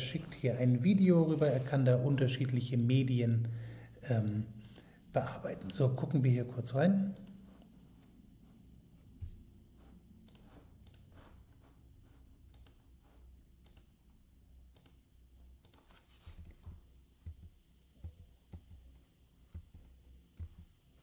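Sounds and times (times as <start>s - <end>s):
computer mouse clicks: 4.6s - 4.9s, 7.1s - 7.7s, 10.2s - 11.3s, 12.5s - 14.0s, 14.7s - 20.8s.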